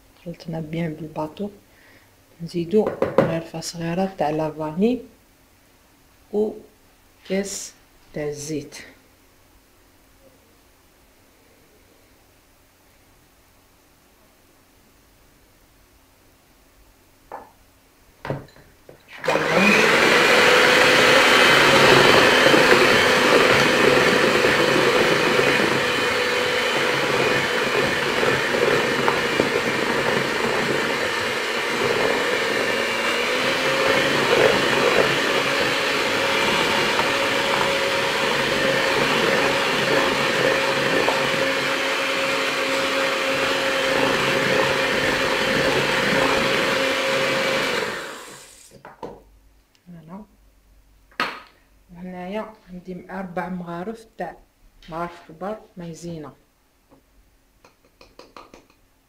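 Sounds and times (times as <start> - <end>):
electric mixer whisking batter: 19.1 - 48.7.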